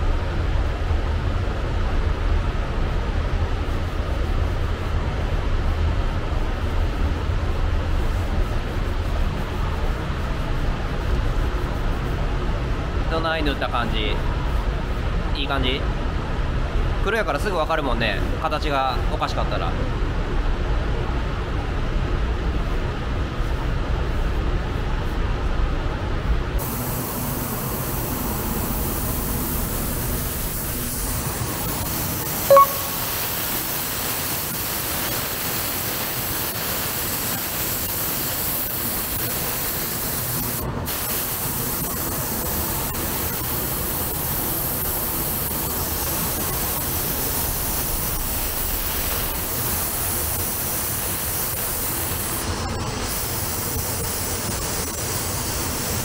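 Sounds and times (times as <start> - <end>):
compressed air hissing: 26.6 - 42.1
short loud beep: 32.5 - 33.2.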